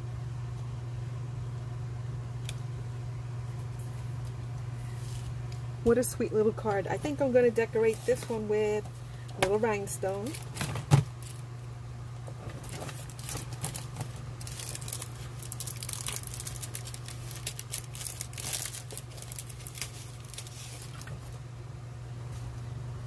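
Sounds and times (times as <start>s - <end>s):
steady low hum: 0.0s - 23.0s
plastic sheet crinkling: 10.2s - 11.4s, 12.4s - 21.4s.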